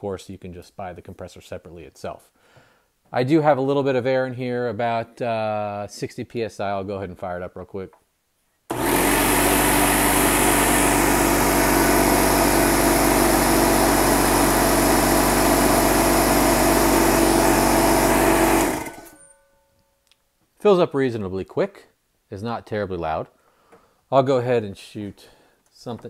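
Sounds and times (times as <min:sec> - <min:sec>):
air compressor running: 0:08.7 - 0:19.2.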